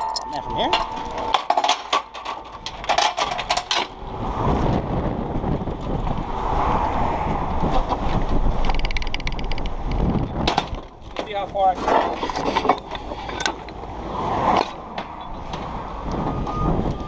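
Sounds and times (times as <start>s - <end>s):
wind buffeting microphone: 2.5s - 13.1s, 15.3s - 17.0s.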